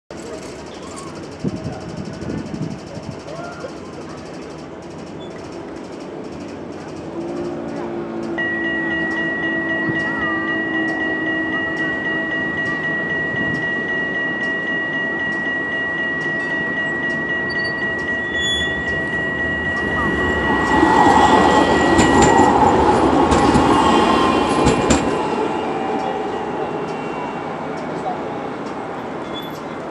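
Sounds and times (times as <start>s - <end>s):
tram wheels rumbling on track: 0.1s - 29.9s
steady high whine: 12.5s - 27.9s.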